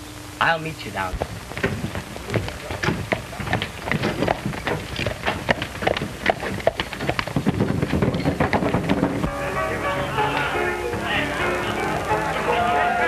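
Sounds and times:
film soundtrack hiss and crackle: 0:00.0 - 0:13.0
horse hooves clopping on dirt: 0:01.1 - 0:09.4.

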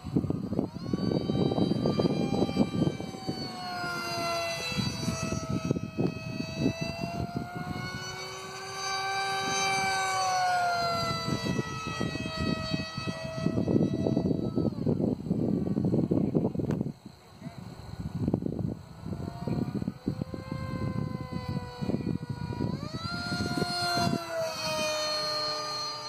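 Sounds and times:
model jet motor whining: 0:00.0 - 0:26.0
wind on microphone: 0:00.0 - 0:26.0.

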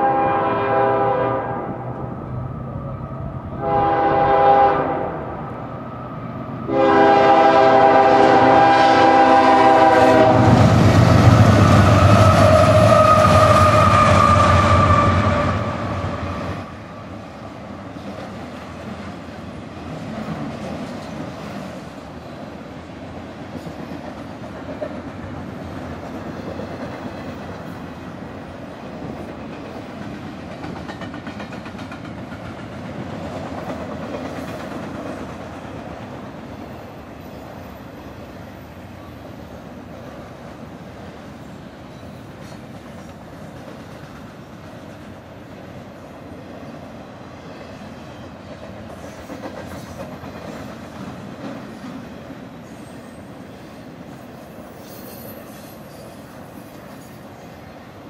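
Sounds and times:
train horn blasts: 0:00.0 - 0:02.0, 0:03.6 - 0:05.3, 0:06.6 - 0:10.8, 0:11.6 - 0:16.7
locomotives passing loudly: 0:00.0 - 0:18.0
rail cars rumbling and clacking: 0:00.0 - 0:58.0.

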